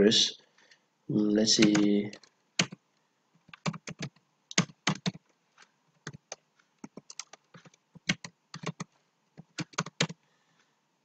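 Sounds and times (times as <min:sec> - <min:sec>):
typing on computer keyboard: 0:01.6 - 0:02.8, 0:03.4 - 0:05.3, 0:06.0 - 0:10.2.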